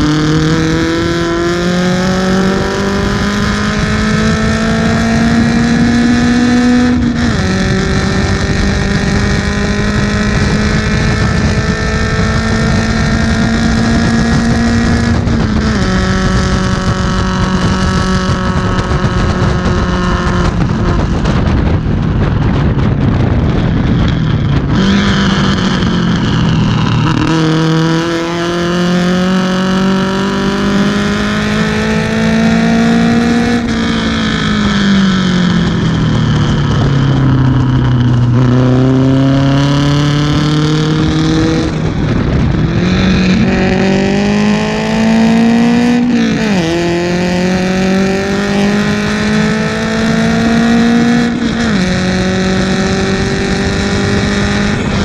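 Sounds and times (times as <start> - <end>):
race car engine accelerating: 0.0 - 55.0.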